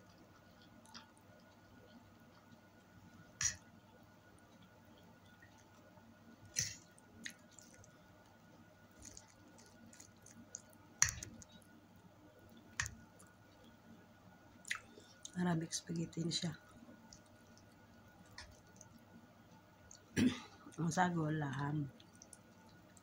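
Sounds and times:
chewing noodles: 0:00.0 - 0:02.8, 0:06.5 - 0:11.7, 0:16.6 - 0:20.2, 0:21.9 - 0:23.0.

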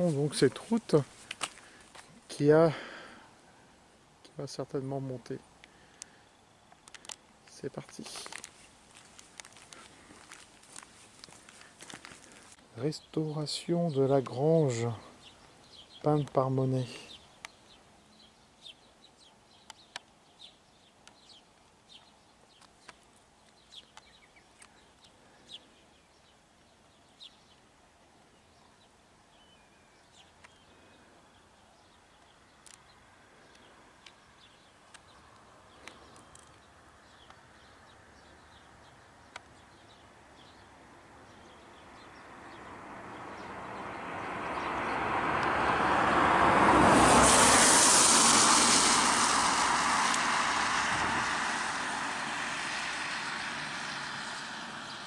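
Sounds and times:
birds chirping: 0:00.0 - 0:46.6
rushing noise: 0:44.4 - 0:54.9.

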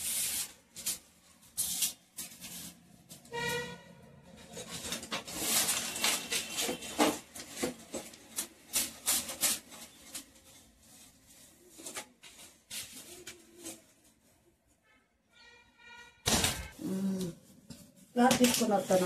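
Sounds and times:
broom sweeping: 0:00.0 - 0:03.5.

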